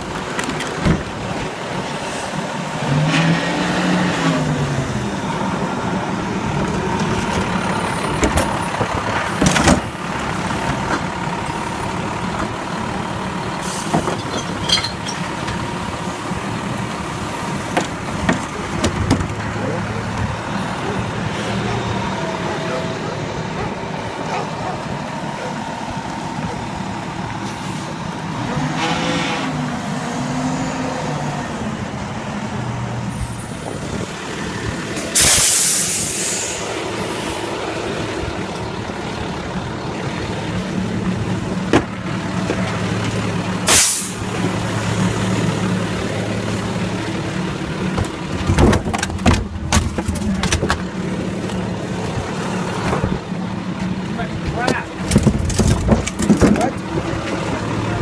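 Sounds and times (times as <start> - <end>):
garbage truck engine running: 0.0 - 58.0
air brake hiss: 35.2 - 36.7, 43.7 - 44.2.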